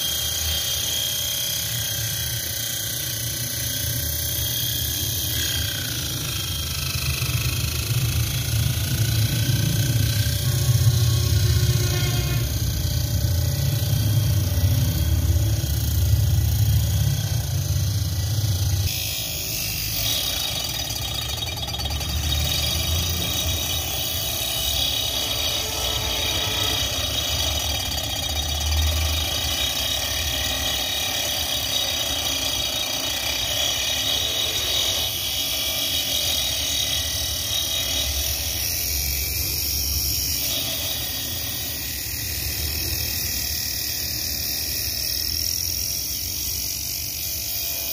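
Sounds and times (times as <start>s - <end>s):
small motor saw whining: 0.0s - 47.9s
saw blade rasping in wood: 3.2s - 15.3s, 18.8s - 42.0s.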